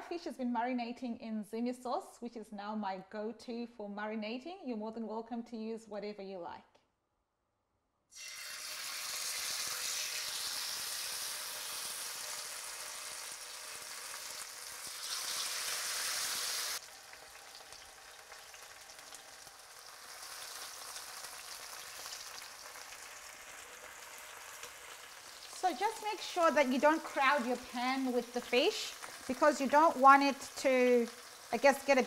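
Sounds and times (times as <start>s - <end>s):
fish sizzling in hot oil: 8.2s - 32.0s.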